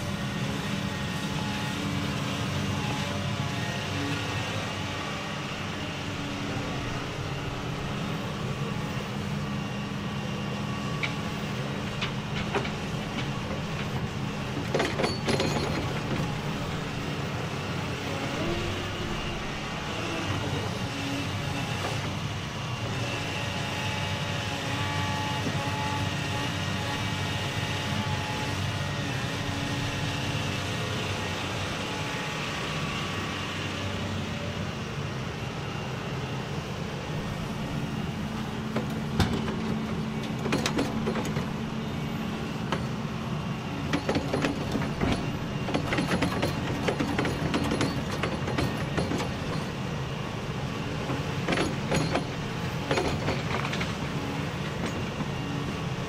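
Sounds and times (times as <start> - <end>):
excavator engine and hydraulics droning: 0.0 - 56.0
clatter of knocks: 11.9 - 16.5, 38.7 - 41.6, 43.9 - 49.8, 51.0 - 55.4.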